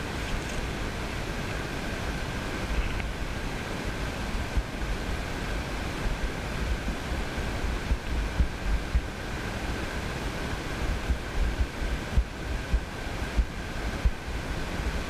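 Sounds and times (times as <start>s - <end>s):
wind buffeting microphone: 0.0s - 9.8s
faint high whine: 0.0s - 15.0s.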